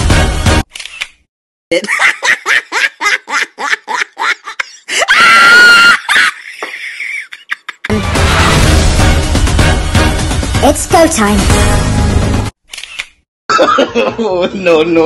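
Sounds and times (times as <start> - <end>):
loud soundtrack music: 0.0 - 0.6, 7.9 - 12.5
cartoon hen cackling laugh: 1.7 - 7.9
high-pitched scream: 5.0 - 6.4.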